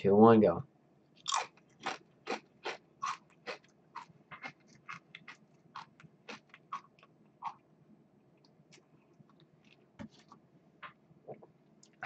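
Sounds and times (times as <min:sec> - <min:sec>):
potato chip crunching: 0:01.2 - 0:07.1.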